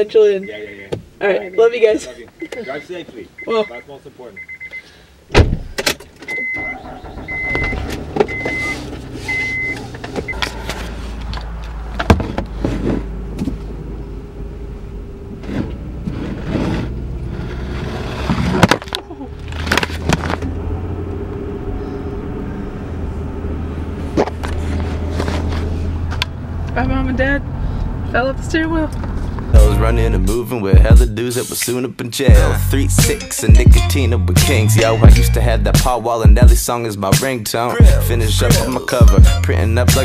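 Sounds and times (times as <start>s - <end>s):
dashboard warning chime beeping: 0.0s - 5.0s, 6.2s - 11.0s
thump in car: 5.3s - 6.0s, 12.0s - 13.6s
low engine hum: 6.4s - 31.2s, 33.6s - 36.6s.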